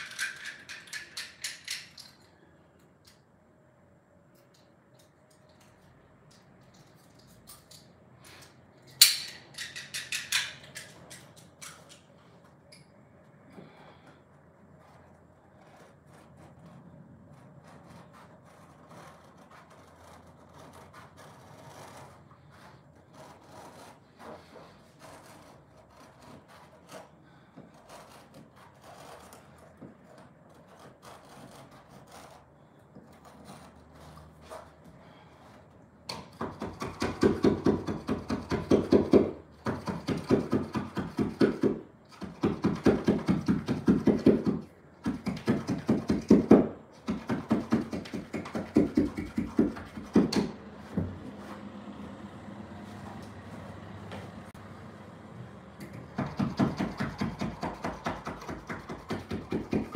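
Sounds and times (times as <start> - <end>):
faint scratching: 13.9 - 35.8
rasping strokes on carpet: 14.6 - 35.8, 56.4 - 59.9.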